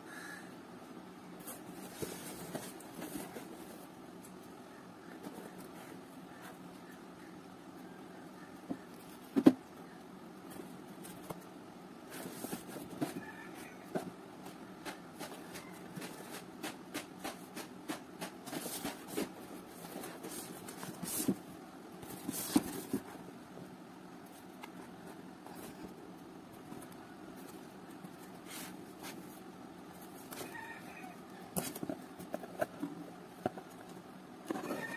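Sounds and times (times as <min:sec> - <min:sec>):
faint steady hum: 0:00.0 - 0:34.9
cardboard box being handled: 0:18.5 - 0:23.2.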